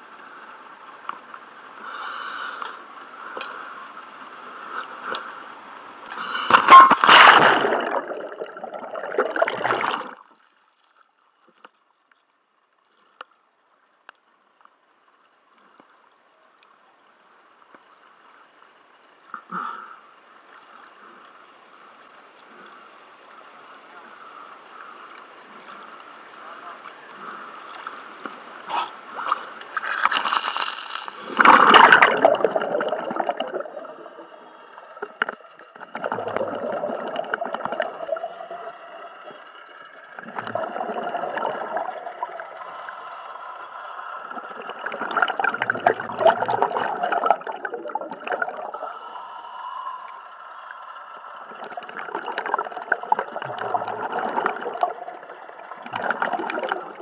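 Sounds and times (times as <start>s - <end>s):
rush of water and bubbles: 1.0s - 10.7s, 23.6s - 57.0s
regulator bubbles gurgling underwater: 6.5s - 10.4s, 31.2s - 49.1s, 50.1s - 57.0s.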